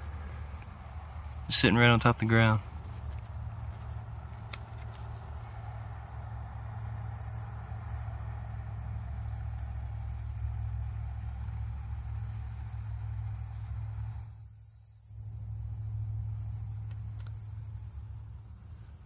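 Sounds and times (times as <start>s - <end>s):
high-pitched insect drone: 6.3s - 18.8s.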